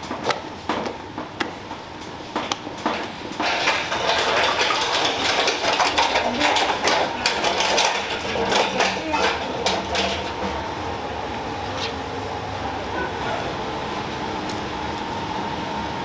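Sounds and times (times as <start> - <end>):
metal trolley rattling: 2.4 - 10.9.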